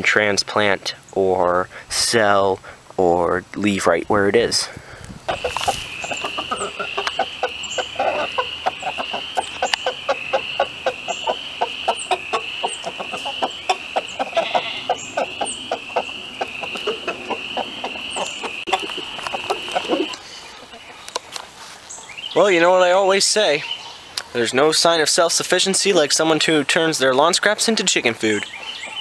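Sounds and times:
hens clucking: 4.2s - 25.0s.

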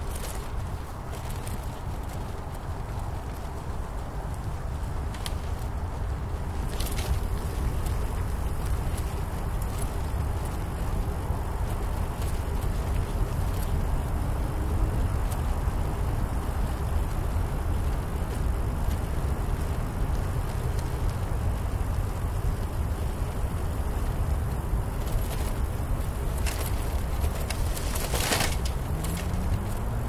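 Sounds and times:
bicycle tyre noise: 0.0s - 30.0s
wind buffeting microphone: 0.0s - 30.0s
sharp clicks and rattles: 25.0s - 29.9s.

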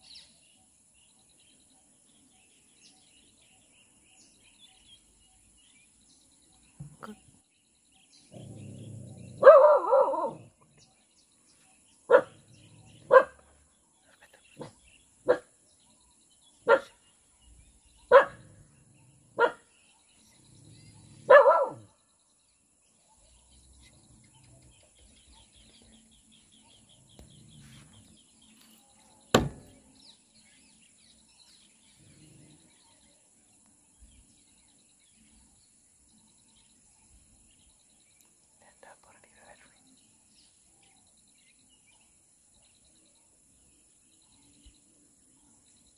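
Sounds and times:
dog barking: 9.4s - 10.5s, 12.1s - 12.4s, 13.0s - 13.5s, 14.6s - 15.5s, 16.6s - 17.0s, 18.1s - 18.6s, 19.4s - 19.7s, 21.0s - 21.9s.

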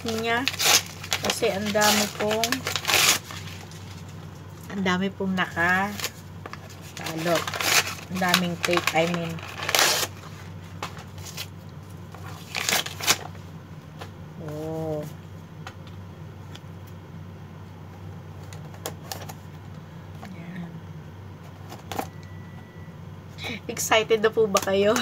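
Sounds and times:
wrapping paper tearing: 0.0s - 4.1s, 5.6s - 11.5s, 12.1s - 13.4s
low steady hum: 0.0s - 25.0s.

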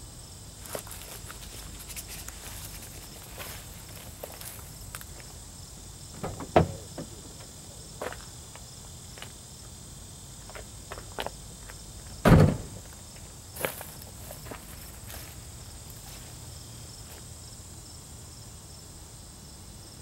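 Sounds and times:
insects droning: 0.0s - 20.0s
thumps and rustles: 6.1s - 7.5s.

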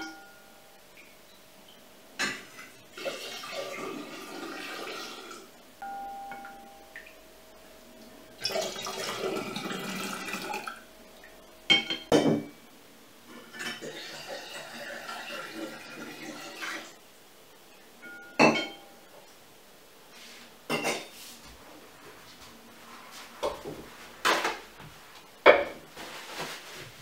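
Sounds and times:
juice pouring into glass jar: 8.4s - 10.8s
kitchenware knocking on table: 11.7s - 12.5s
metal clinking against glass: 18.0s - 18.9s.

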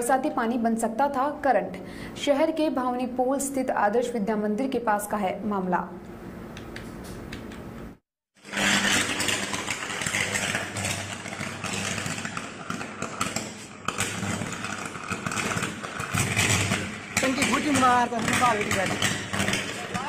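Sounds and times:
electrical arcing crackle: 8.4s - 20.0s.

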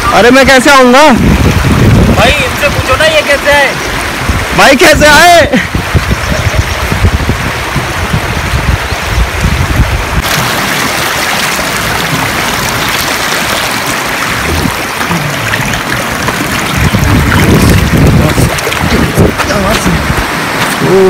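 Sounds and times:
stream babbling over stones: 6.8s - 21.0s
low rumble: 11.8s - 20.3s.

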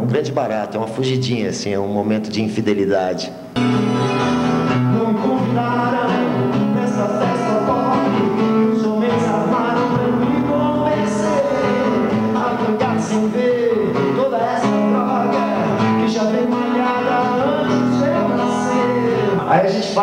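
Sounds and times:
acoustic guitar strumming: 3.3s - 20.0s
man singing: 4.6s - 20.0s.

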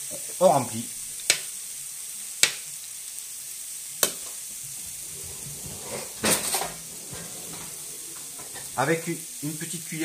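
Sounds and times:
sizzling hiss: 0.0s - 10.0s.

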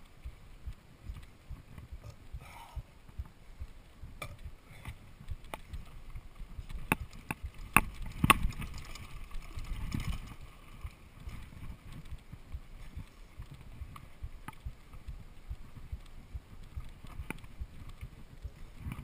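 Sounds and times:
bike knocking and rattling: 0.0s - 19.0s
bike tyre rumble on dirt: 0.0s - 19.0s.

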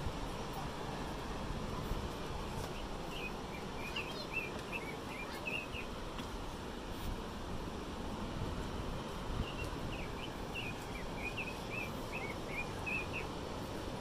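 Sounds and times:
distant surf: 0.0s - 14.0s
wind: 0.0s - 14.0s
small bird chirping: 2.7s - 5.9s, 9.4s - 13.3s.

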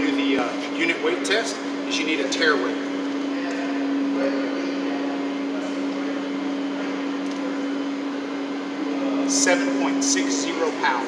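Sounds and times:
mechanical hum with hiss: 0.0s - 11.0s.

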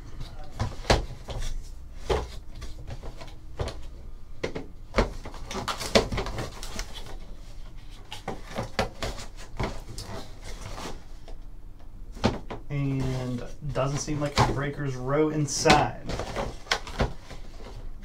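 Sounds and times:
cardboard scraping and rustling: 5.0s - 11.3s, 12.1s - 14.8s, 15.6s - 17.9s.

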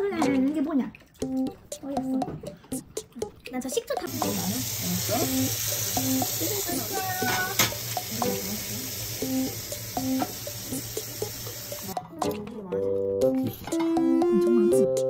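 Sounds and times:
food sizzling in frying: 4.1s - 12.0s.

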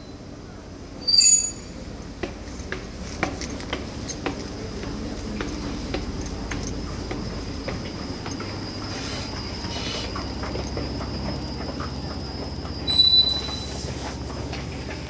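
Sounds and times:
escalator rumbling and rattling: 0.7s - 15.0s.

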